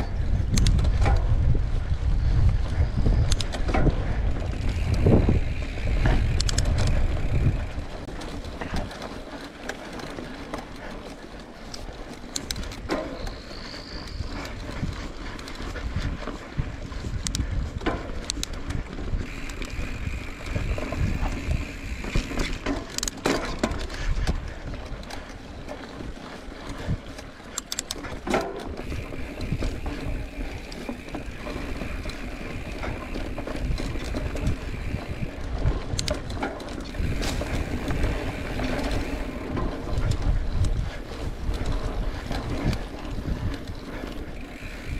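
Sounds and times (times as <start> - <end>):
bike clicks and clatters: 0.0 - 44.9
low rumble of bike ride: 0.0 - 44.9.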